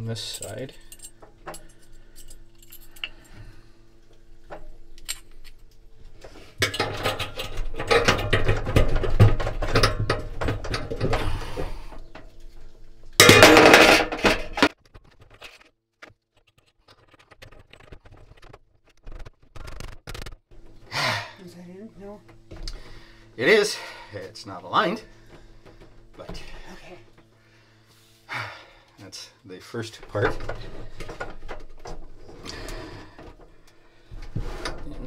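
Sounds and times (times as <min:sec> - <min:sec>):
steady low hum: 0:00.0 - 0:14.8, 0:17.4 - 0:35.0
metal clattering and scraping: 0:06.4 - 0:11.4, 0:13.2 - 0:15.6.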